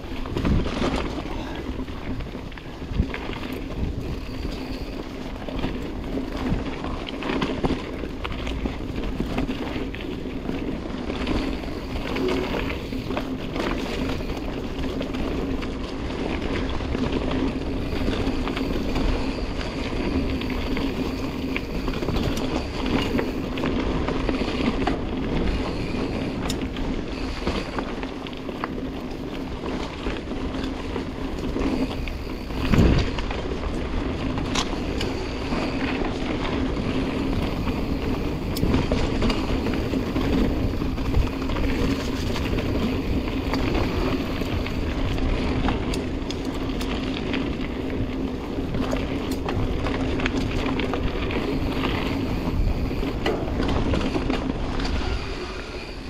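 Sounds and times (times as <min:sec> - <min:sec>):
bike rattling and knocking: 0:00.0 - 0:56.0
bike tyres rolling: 0:00.0 - 0:56.0.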